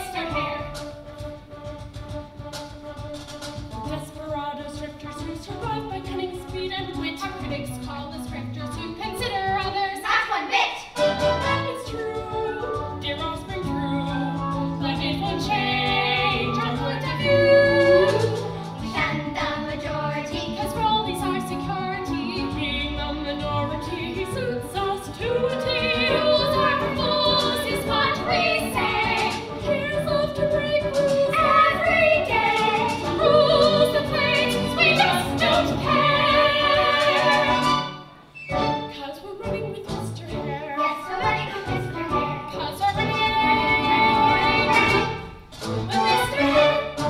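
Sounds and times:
musical accompaniment: 0:00.0 - 0:10.1, 0:10.9 - 0:47.0
opera singing: 0:11.0 - 0:37.9, 0:38.9 - 0:45.2.

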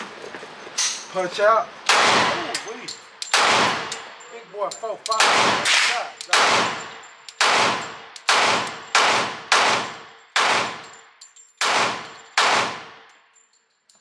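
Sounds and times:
pistol shots echoing indoors: 0:01.9 - 0:02.6, 0:03.2 - 0:04.0, 0:05.1 - 0:11.0, 0:11.6 - 0:13.1.

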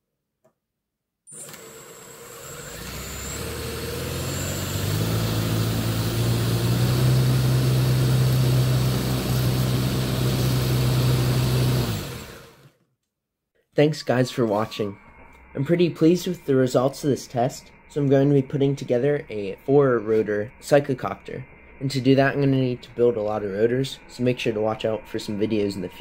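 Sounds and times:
motor humming: 0:01.3 - 0:12.7.

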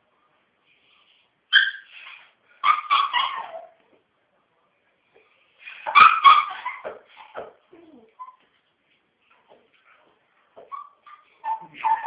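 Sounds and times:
puppies whining: 0:05.9 - 0:08.5, 0:10.6 - 0:12.0.

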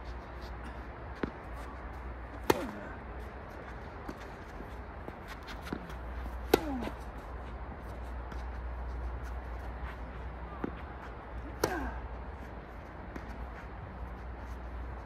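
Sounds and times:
tennis ball impacts: 0:01.1 - 0:03.1, 0:04.0 - 0:07.1, 0:11.5 - 0:12.2.

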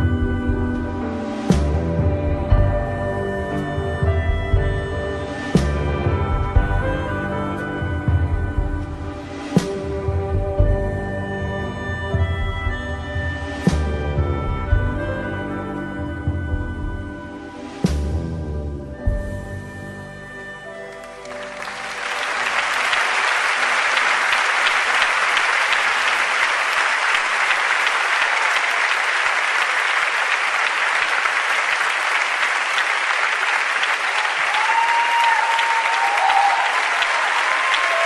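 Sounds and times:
band sustained notes: 0:00.0 - 0:29.2
audience applauding: 0:20.8 - 0:38.0.

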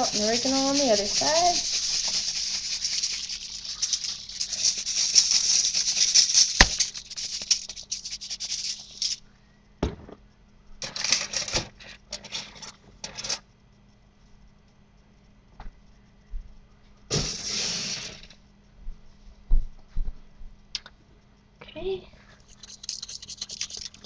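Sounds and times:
short shakes of dried herbs: 0:00.0 - 0:09.2, 0:22.4 - 0:24.0
spice shaker rattling: 0:00.0 - 0:09.2, 0:10.8 - 0:13.4, 0:22.4 - 0:24.0.

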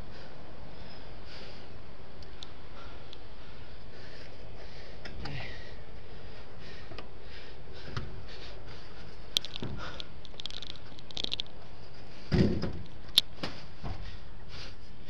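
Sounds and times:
steady hiss: 0:00.0 - 0:15.0
dull thump: 0:12.3 - 0:12.8.

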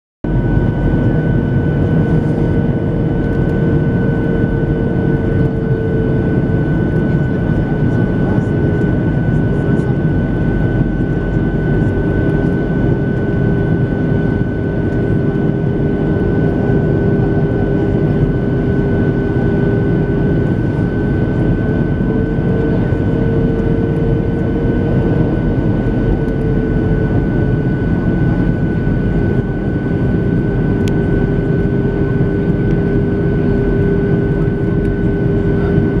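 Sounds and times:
jet engine cabin noise: 0:00.2 - 0:36.0.

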